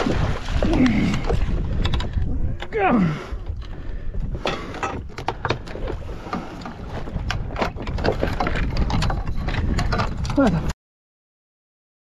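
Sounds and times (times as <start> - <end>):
water splashes at boat stern: 0.0 - 8.7
wind rumble on microphone: 0.0 - 10.7.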